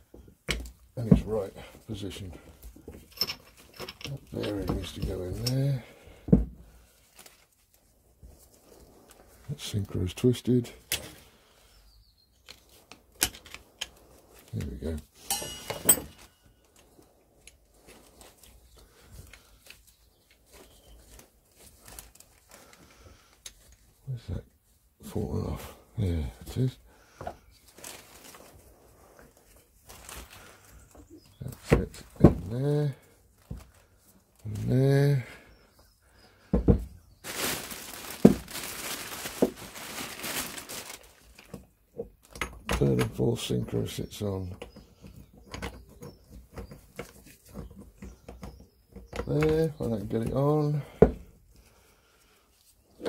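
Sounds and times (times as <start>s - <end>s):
plastic bag crinkling: 15.7s - 23.7s, 27.6s - 31.5s, 37.2s - 41.7s.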